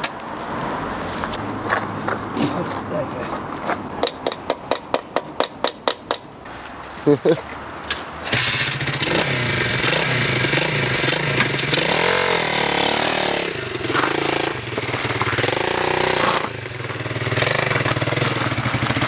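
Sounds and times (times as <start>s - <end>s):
motorbike engine revving: 8.2s - 19.0s.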